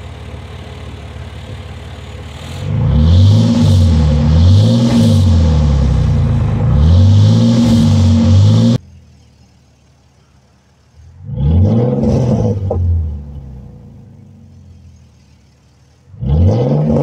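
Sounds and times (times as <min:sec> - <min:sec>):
car engine revving: 0:00.0 - 0:08.9, 0:10.8 - 0:17.0
car engine idling: 0:00.0 - 0:17.0.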